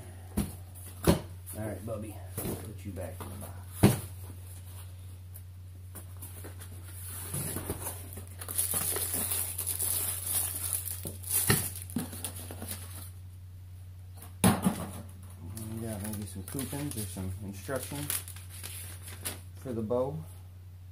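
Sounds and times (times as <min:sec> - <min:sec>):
plastic wrapping rustling: 0:06.0 - 0:13.2, 0:15.4 - 0:19.5.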